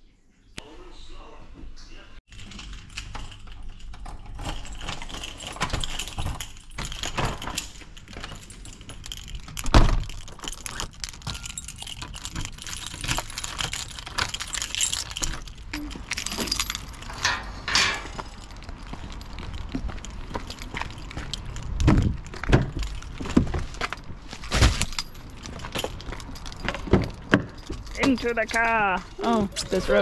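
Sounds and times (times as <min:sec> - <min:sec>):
door unlocking and locking: 0:02.3 - 0:18.4
keys jangling: 0:02.3 - 0:28.8
metal gate latch clanking: 0:16.2 - 0:18.2.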